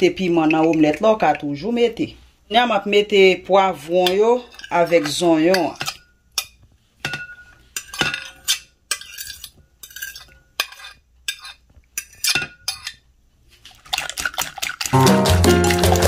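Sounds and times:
fork scraping against plate and bowl: 4.4 - 13.0
music: 15.0 - 16.0.

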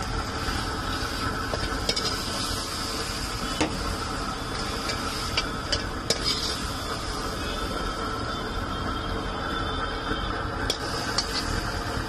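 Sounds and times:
frying hiss: 0.0 - 8.7, 9.4 - 12.0
ladle scraping a wok: 0.2 - 7.4, 10.7 - 11.8.

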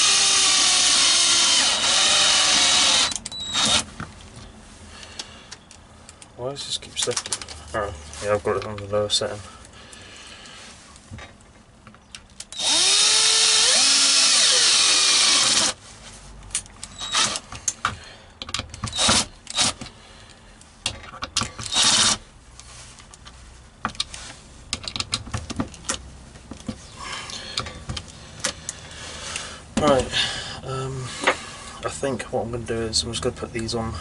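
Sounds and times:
drill driving screws: 0.0 - 3.9, 12.5 - 15.8, 16.9 - 17.4, 18.9 - 19.8, 21.6 - 22.2.

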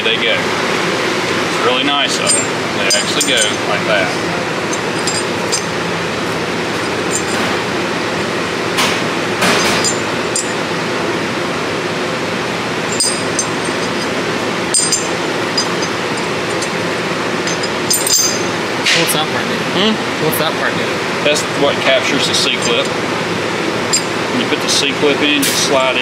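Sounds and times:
steady background noise: 0.0 - 26.0
metal parts clinking: 2.1 - 3.8, 4.7 - 5.8, 6.7 - 7.6, 9.4 - 10.6, 12.8 - 18.6, 22.4 - 23.0, 23.9 - 24.2.

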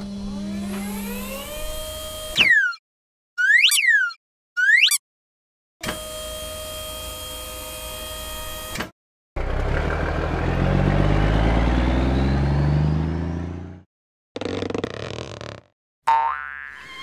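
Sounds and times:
tipper bed mechanical hum: 0.0 - 2.2
truck engine accelerating: 9.4 - 13.9.

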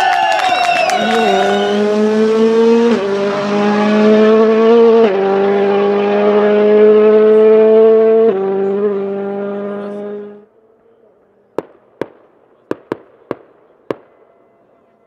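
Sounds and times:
rally car engine revving: 0.6 - 10.5
firework bangs: 11.2 - 14.9.

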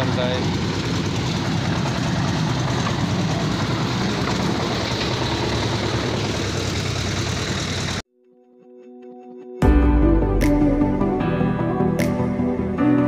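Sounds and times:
concrete mixer engine running: 0.0 - 8.0.

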